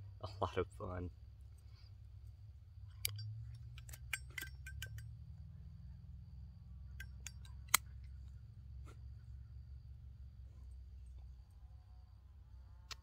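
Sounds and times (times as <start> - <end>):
lighter metallic clicks: 7.0 - 7.9.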